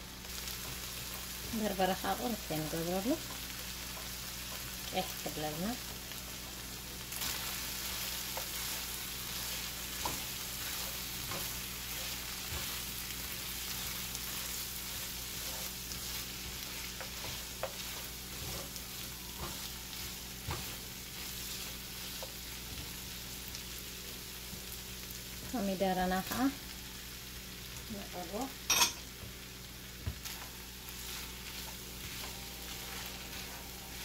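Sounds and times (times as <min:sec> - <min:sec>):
meat and onions sizzling in pan: 0:00.0 - 0:34.0
spatula scraping a pan: 0:07.2 - 0:22.8.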